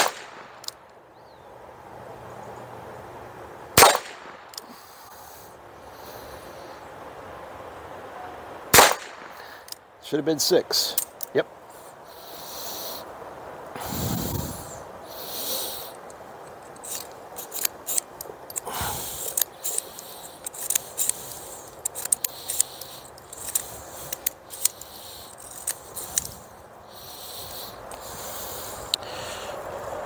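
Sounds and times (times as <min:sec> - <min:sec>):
revolver metallic clicks: 0:00.0 - 0:01.0, 0:15.8 - 0:26.5.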